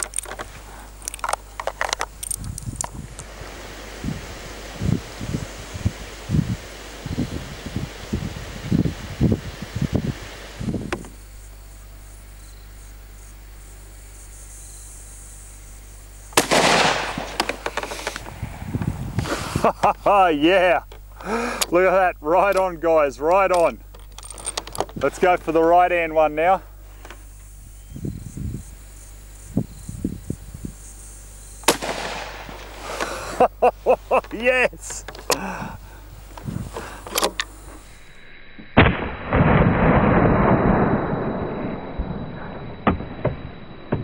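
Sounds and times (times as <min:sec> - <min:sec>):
faint high hiss: 0:00.0 - 0:39.5
rifle shot with echo: 0:16.4 - 0:17.7, 0:31.6 - 0:32.7
rifle shot: 0:16.4 - 0:18.6, 0:31.6 - 0:32.7, 0:38.8 - 0:41.7
low bumps: 0:16.4 - 0:28.6.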